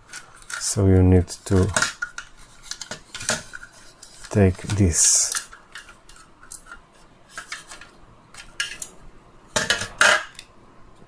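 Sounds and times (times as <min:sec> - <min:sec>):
plastic parts clicking and knocking: 0:01.4 - 0:06.8, 0:07.4 - 0:10.5.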